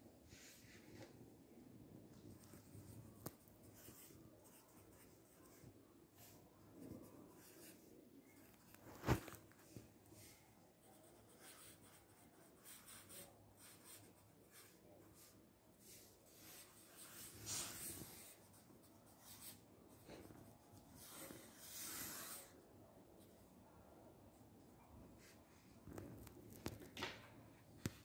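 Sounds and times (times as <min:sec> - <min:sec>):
pen scratching on paper: 0:10.8 - 0:22.6.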